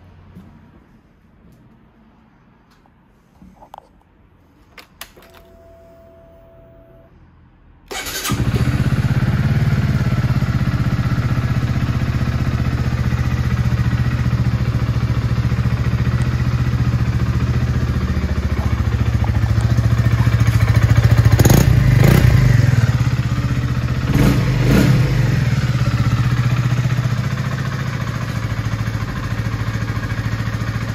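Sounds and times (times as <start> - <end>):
motorcycle engine idling: 7.9 - 30.9.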